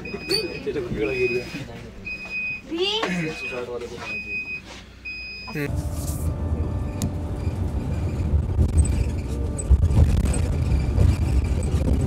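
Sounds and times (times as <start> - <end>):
bus road and tyre rumble: 4.8 - 12.0.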